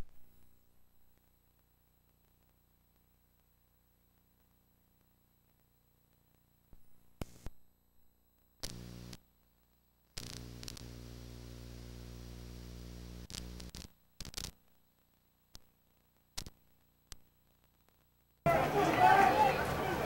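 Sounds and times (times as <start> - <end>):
sharp clicks and pops: 0.0 - 7.6, 8.4 - 18.4
electrical hum and hiss: 0.0 - 18.5.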